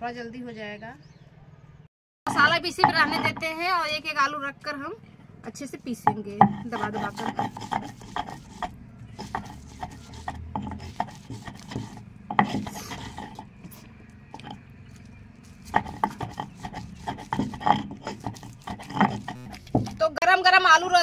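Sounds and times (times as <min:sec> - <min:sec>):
stone roller scraping on stone: 0:02.3 - 0:03.6, 0:06.0 - 0:20.1.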